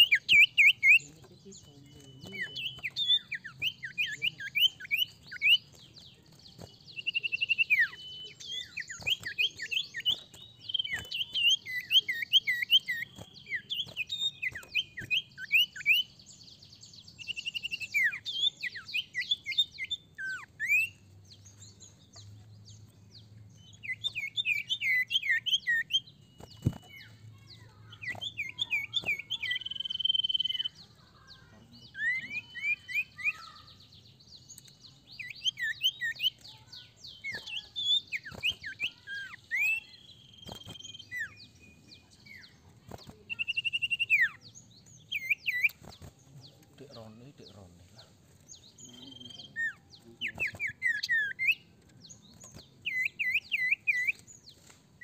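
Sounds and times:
bird singing chirps and trills: 0:00.0 - 0:55.0.

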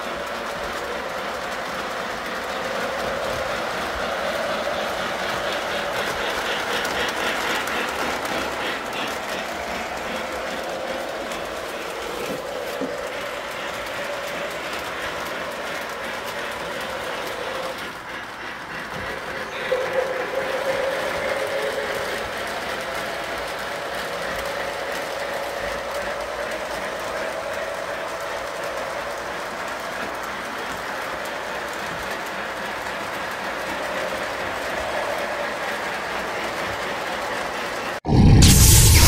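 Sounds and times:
model train motor whine: 0:00.0 - 0:38.0
wheels rattling on rails: 0:00.0 - 0:38.0.

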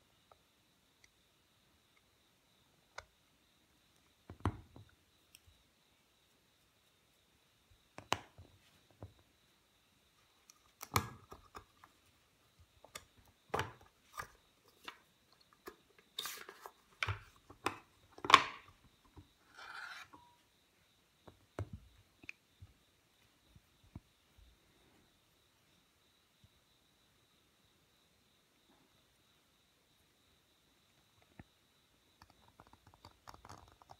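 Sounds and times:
small hard objects clicking: 0:32.2 - 0:33.9.

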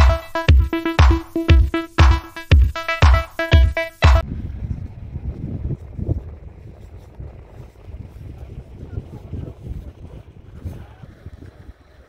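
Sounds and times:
electronic dance music: 0:00.0 - 0:04.2
wind buffeting microphone: 0:04.2 - 0:12.0.

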